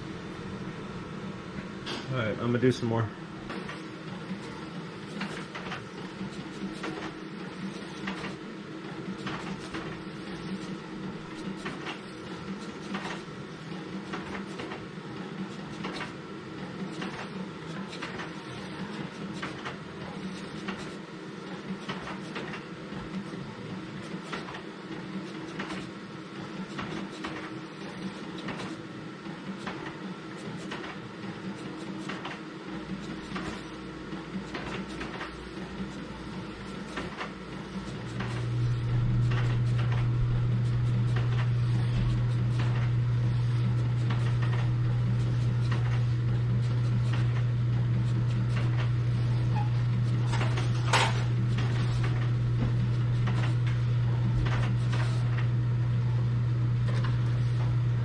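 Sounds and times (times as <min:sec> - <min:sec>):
loud low hum: 0:38.5 - 0:45.0.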